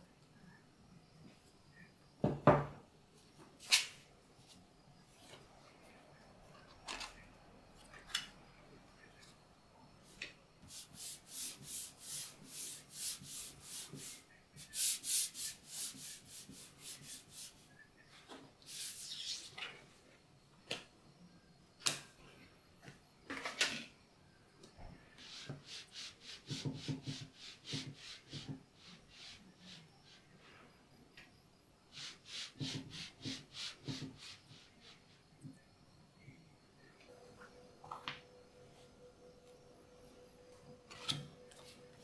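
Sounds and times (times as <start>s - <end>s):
paper rubbed on plastic mat: 10.7s - 17.6s.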